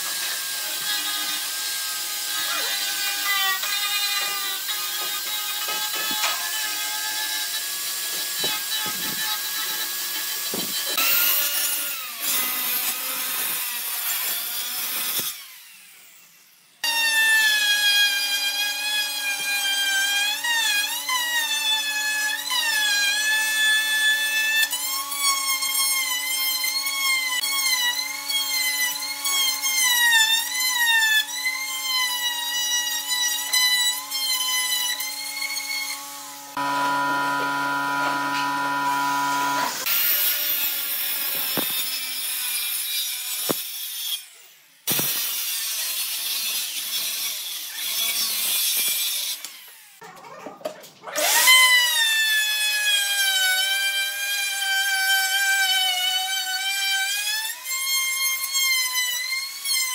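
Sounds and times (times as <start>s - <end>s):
router cutting wood: 0.0s - 50.0s, 51.2s - 59.9s
angle grinder sanding wood: 31.7s - 43.8s.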